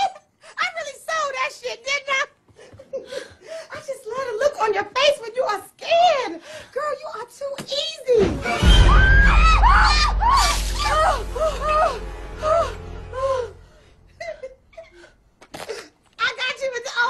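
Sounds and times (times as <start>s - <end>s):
deep rumbling music sting: 8.4s - 14.3s
women shrieking: 8.6s - 12.0s.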